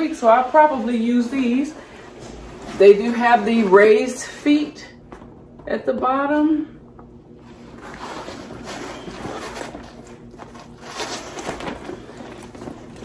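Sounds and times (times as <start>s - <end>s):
bag rustling and scraping: 0.0s - 4.3s, 7.4s - 13.0s.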